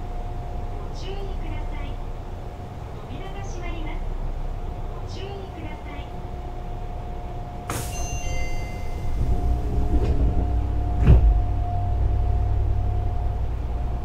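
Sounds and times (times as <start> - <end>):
train equipment hum: 0.0 - 14.0
sliding doors closing with thump: 7.7 - 11.6.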